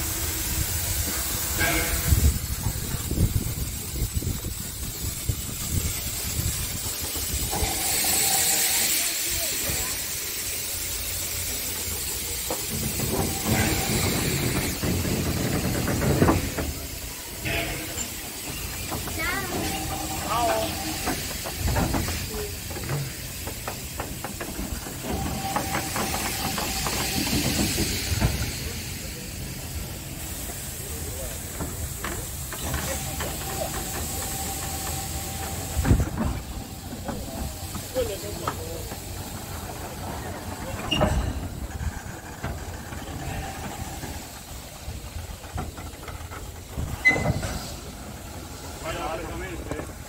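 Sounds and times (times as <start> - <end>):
steam hissing: 0.0 - 50.0
wheels clanking and knocking: 0.1 - 50.0.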